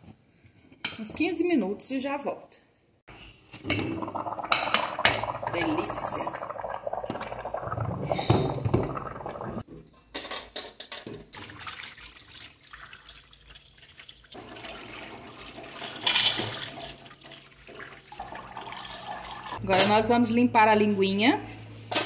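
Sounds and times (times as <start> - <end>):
hands rinsing meat in water: 11.4 - 19.6
tap water running into tray: 11.4 - 19.6.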